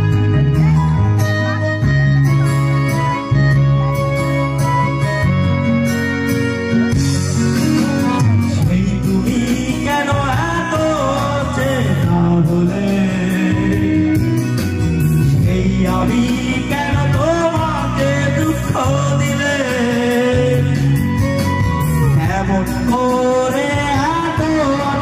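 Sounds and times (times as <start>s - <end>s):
instrumental backing music: 0.0s - 25.0s
man singing into a microphone: 7.2s - 25.0s.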